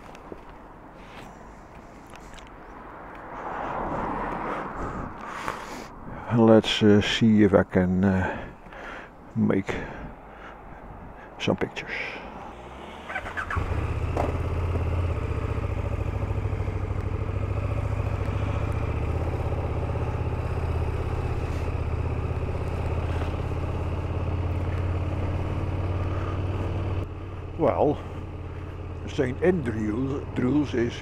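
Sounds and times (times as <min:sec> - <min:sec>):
motorcycle engine starting and idling: 0:12.5 - 0:31.0.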